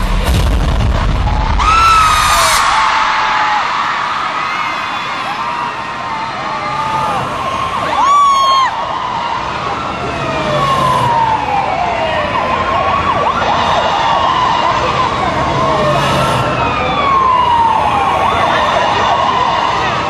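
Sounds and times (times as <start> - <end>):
loud show soundtrack: 0.0 - 9.0
concert audience screaming: 1.0 - 20.0
siren-like sweep: 1.3 - 20.0.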